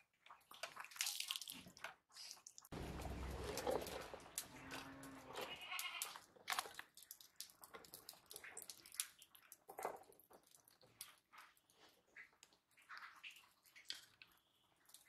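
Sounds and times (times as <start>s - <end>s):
animal bleat: 4.5s - 6.3s.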